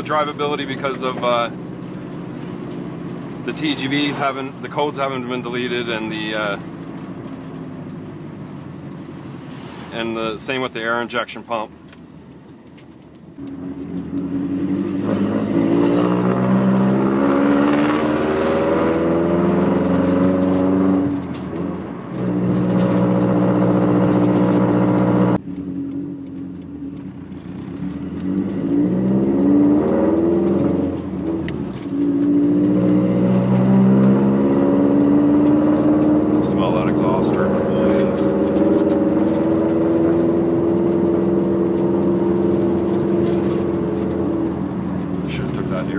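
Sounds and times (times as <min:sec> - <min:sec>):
car engine accelerating through gears: 0:13.4 - 0:45.9.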